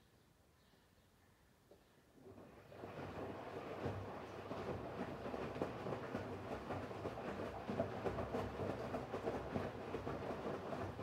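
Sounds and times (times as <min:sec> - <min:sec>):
washing machine rumbling: 0:02.3 - 0:11.0.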